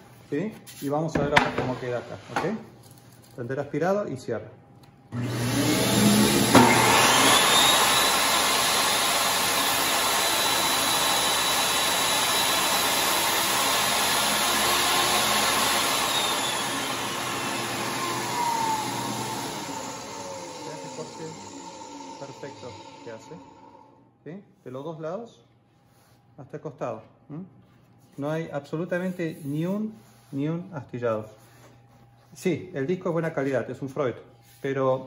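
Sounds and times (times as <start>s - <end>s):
shop vacuum running: 0.0s - 3.2s, 5.1s - 24.2s
table saw motor whine: 5.1s - 24.0s
saw cutting board: 5.2s - 23.9s.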